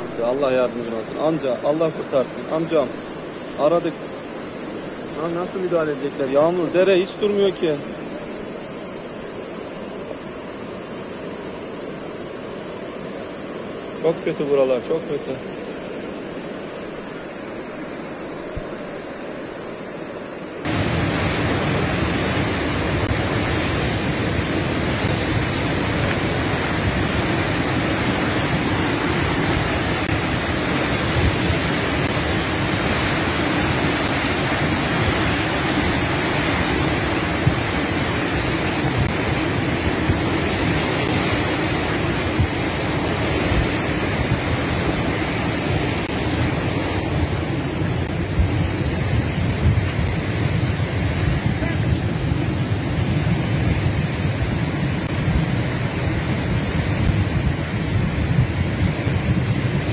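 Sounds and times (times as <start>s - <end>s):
river in flood roaring: 0.0s - 59.9s.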